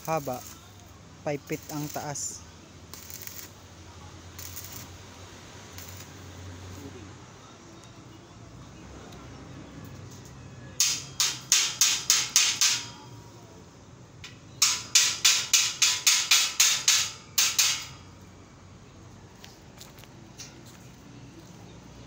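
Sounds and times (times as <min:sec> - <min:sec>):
hammer striking steel frame: 0:10.8 - 0:13.2, 0:14.2 - 0:18.2.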